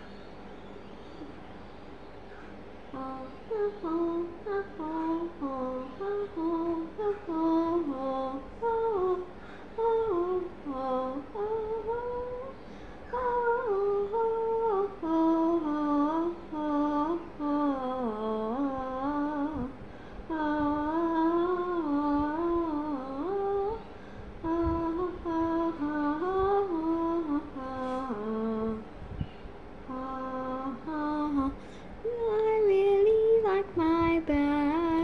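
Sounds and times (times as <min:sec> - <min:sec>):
girl humming: 0:29.9 - 0:35.0.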